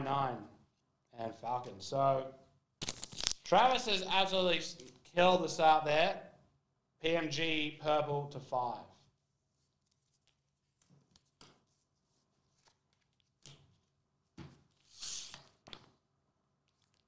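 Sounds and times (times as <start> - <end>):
foil wrapper crinkle: 2.8 - 3.5.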